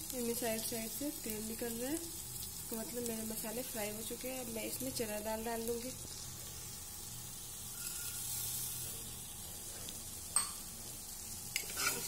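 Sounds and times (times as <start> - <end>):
masala sizzling in oil: 0.0 - 12.0.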